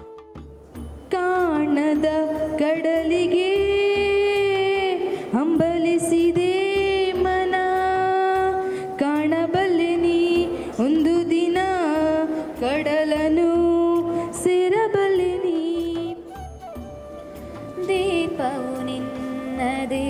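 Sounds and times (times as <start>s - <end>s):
woman singing into microphone: 1.1s - 16.4s, 17.4s - 20.0s.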